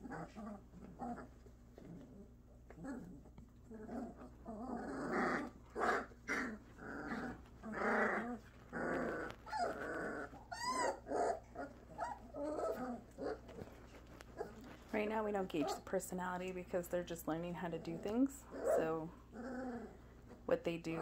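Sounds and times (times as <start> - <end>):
puppies growling: 0.0 - 16.0, 16.9 - 21.0
puppy crying: 2.7 - 13.8.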